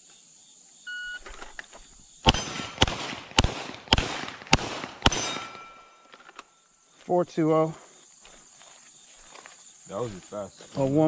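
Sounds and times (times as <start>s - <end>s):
pistol shots echoing: 2.2s - 6.2s.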